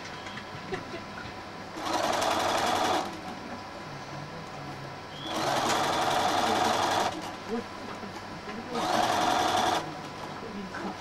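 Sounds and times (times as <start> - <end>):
electric sewing machine stitching: 1.8 - 3.2, 5.3 - 7.3, 8.8 - 9.9.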